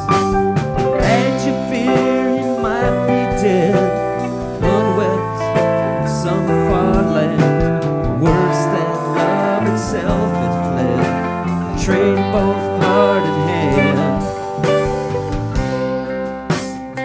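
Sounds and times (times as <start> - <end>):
guitars: 0.0 - 17.0
wavering melody line: 11.6 - 16.2
drum beat: 11.8 - 17.0.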